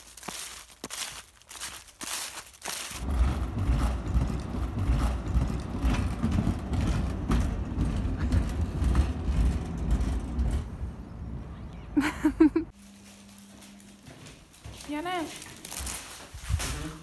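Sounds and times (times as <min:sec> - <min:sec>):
footsteps crunching dry leaves: 0:00.0 - 0:03.1, 0:12.7 - 0:17.0
loud uneven low rumble: 0:03.0 - 0:12.7.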